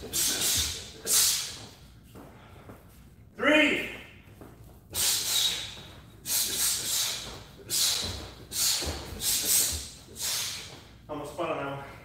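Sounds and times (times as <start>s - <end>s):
sharp hissing exhalations: 0.0s - 1.7s, 4.9s - 10.8s
bare feet thudding on mat: 3.9s - 10.9s.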